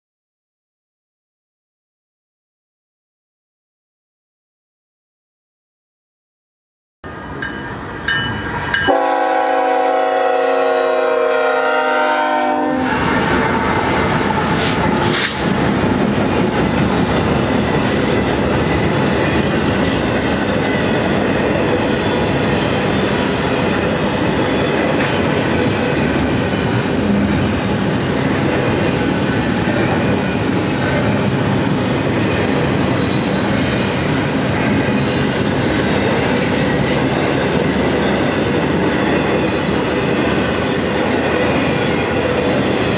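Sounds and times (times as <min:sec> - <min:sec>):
freight train wheels rolling on rails: 0:07.1 - 0:42.9
locomotive air horn: 0:08.9 - 0:12.9.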